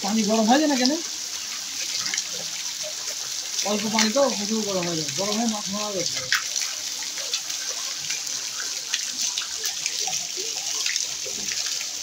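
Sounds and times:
water splashing into pond: 0:00.7 - 0:12.0
droplets landing on water: 0:03.6 - 0:11.9.

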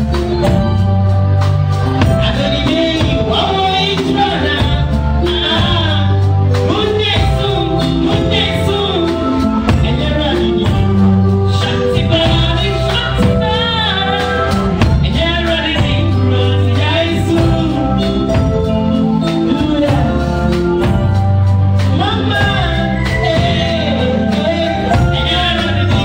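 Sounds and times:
drum kit: 0:00.0 - 0:26.0
electric bass: 0:00.0 - 0:26.0
keyboard: 0:00.0 - 0:26.0
woman singing: 0:02.2 - 0:20.7, 0:21.8 - 0:26.0.

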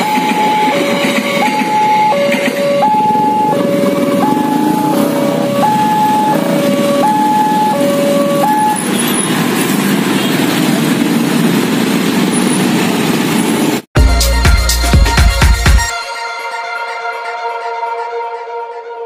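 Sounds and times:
level crossing two-tone alarm: 0:00.0 - 0:08.9
electronic music with heavy bass: 0:14.0 - 0:18.1.

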